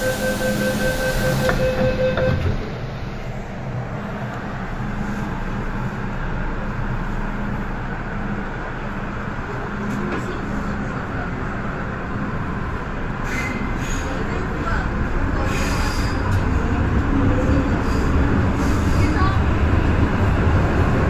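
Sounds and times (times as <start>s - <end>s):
door-closing beep: 0.0s - 2.7s
electric train pulling away: 0.0s - 2.7s.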